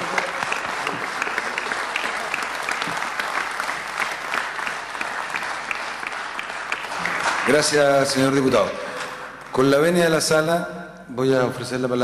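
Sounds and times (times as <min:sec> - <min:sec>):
crowd applauding: 0:00.0 - 0:09.5.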